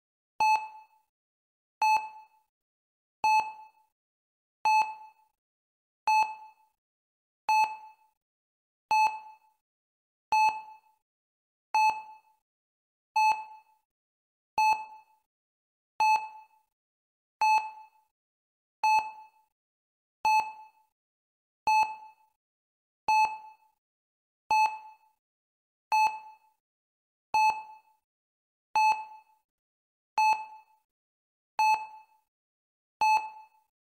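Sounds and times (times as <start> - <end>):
heart rate monitor beeping: 0.4 - 0.8, 1.8 - 2.4, 3.2 - 3.7, 4.7 - 5.1, 7.5 - 7.9, 8.9 - 9.4, 10.3 - 10.7, 11.8 - 12.2, 13.2 - 13.7, 14.6 - 14.9, 16.0 - 16.4, 18.8 - 19.2, 20.2 - 20.6, 21.7 - 22.1, 23.1 - 23.4, 24.5 - 24.8, 25.9 - 26.3, 27.4 - 27.8, 28.8 - 29.3, 30.2 - 30.6, 31.6 - 32.0, 33.0 - 33.6.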